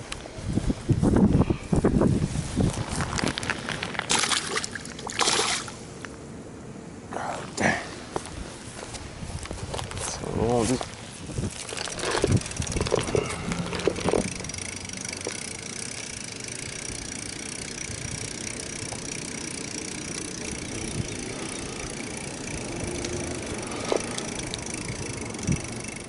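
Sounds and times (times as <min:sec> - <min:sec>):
bicycle tyres rolling on concrete: 0:00.0 - 0:05.0, 0:07.6 - 0:26.0
bicycle clicks and knocks: 0:11.5 - 0:26.0.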